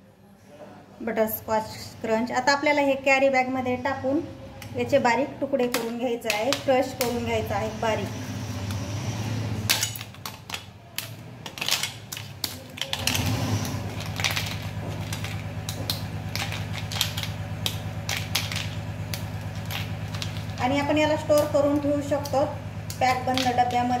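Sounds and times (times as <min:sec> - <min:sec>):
steady low hum: 0:01.3 - 0:24.0
brittle snapping and cracking: 0:09.7 - 0:20.6.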